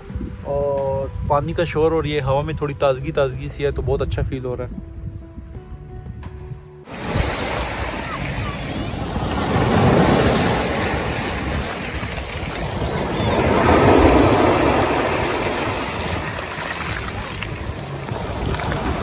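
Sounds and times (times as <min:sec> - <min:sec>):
wind on microphone: 0:00.0 - 0:02.7, 0:03.5 - 0:19.0
small waves washing over pebbles: 0:06.9 - 0:19.0.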